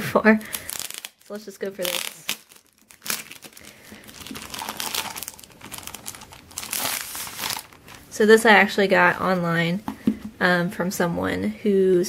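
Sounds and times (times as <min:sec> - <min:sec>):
plastic sleeve crinkling: 0:00.4 - 0:08.1.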